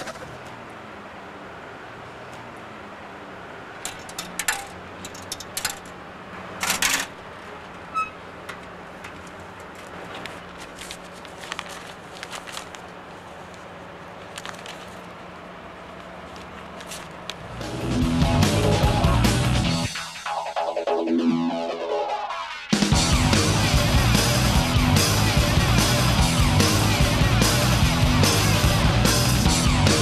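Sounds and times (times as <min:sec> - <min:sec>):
metal clicks and rattles: 0:03.8 - 0:06.0, 0:06.6 - 0:07.2
scraping rustle: 0:06.6 - 0:15.2, 0:15.9 - 0:17.3
paper handling: 0:09.0 - 0:15.2, 0:15.9 - 0:17.4.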